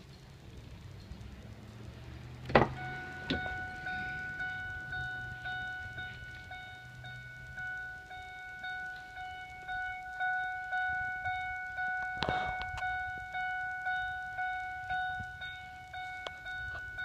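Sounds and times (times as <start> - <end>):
car warning chime dinging: 1.8 - 17.0.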